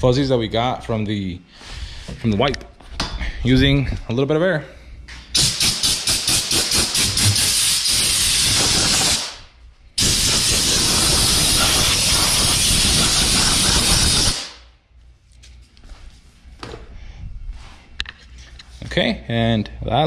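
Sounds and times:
compressed air blow gun hissing: 5.4s - 9.4s, 10.0s - 14.6s.

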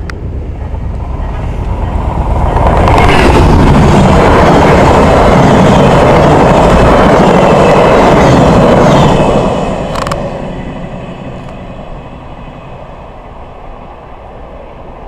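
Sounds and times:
passenger train passing at speed: 0.0s - 15.0s
train wheels on rails: 0.0s - 15.0s.

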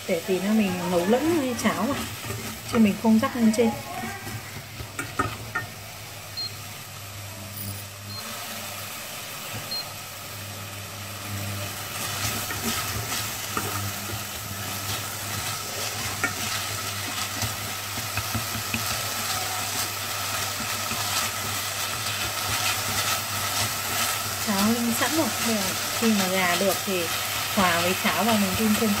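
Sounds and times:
meat sizzling in a pot: 0.0s - 29.0s
chopsticks scraping a pot: 0.7s - 5.8s, 11.8s - 29.0s.

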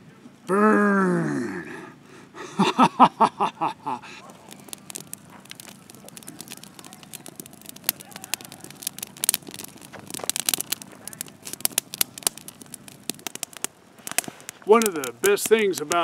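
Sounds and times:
campfire crackling and popping: 0.5s - 16.0s
burst of laughter: 2.4s - 4.2s
man speaking: 14.7s - 16.0s.

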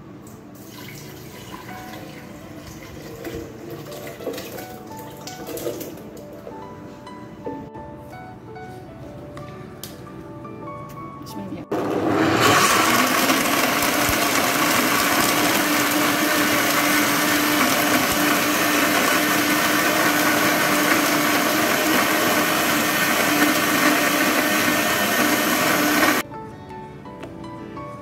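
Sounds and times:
blender running: 11.7s - 26.2s.

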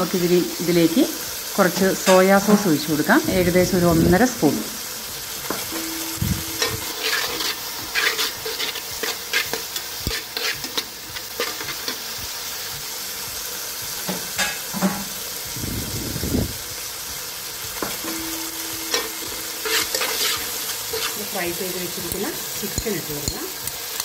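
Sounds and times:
vegetables sizzling in hot oil: 0.0s - 24.0s
metal spatula scraping a pan: 5.5s - 12.1s, 18.0s - 24.0s
metal clicking against pan: 22.1s - 24.0s.

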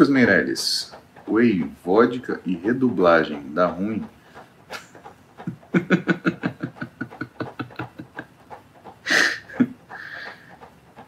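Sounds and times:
man laughing: 4.7s - 10.6s.

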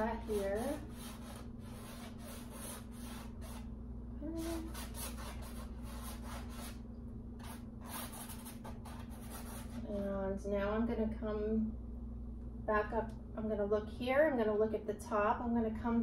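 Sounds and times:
paintbrush scrubbing over canvas: 0.0s - 3.7s, 4.4s - 6.8s.

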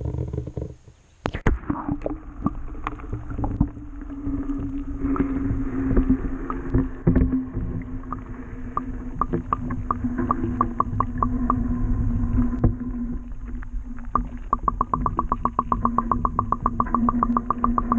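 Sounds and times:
muffled underwater rumble: 0.0s - 17.9s
steady low hum: 2.0s - 17.9s
underwater clicks: 8.0s - 11.6s, 13.5s - 17.9s.

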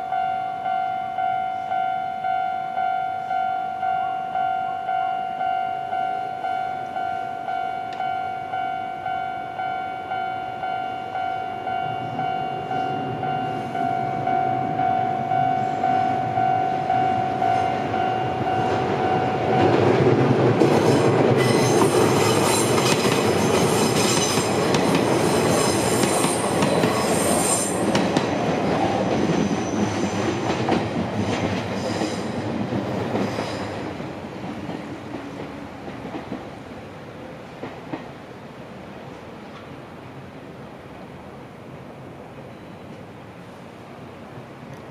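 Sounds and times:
high squealing of train wheels: 0.0s - 20.0s, 20.6s - 35.8s
level crossing alarm ringing: 0.0s - 20.2s
train wheels clattering on rails: 16.8s - 36.8s, 37.4s - 38.3s.

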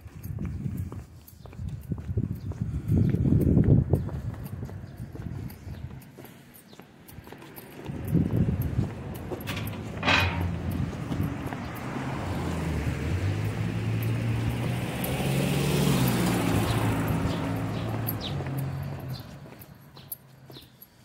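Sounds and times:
footsteps on pavement: 0.0s - 21.0s
vehicle engine passing: 7.4s - 20.6s.

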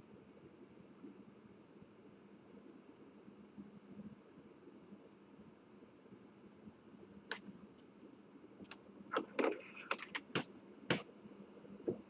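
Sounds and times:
sharp clicks and knocks: 8.6s - 11.0s.

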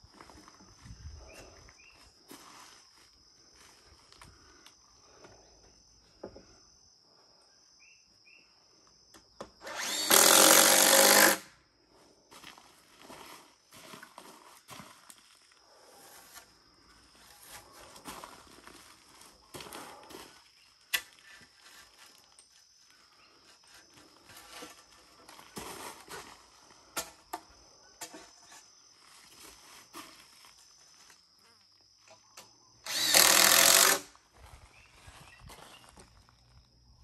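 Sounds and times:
power drill running: 9.6s - 11.5s, 32.8s - 34.1s.

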